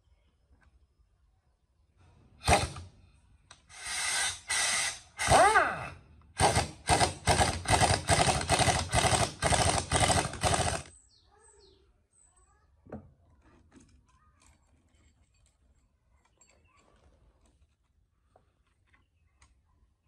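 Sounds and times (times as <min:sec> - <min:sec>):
power driver running in bursts: 0:06.4 - 0:10.9.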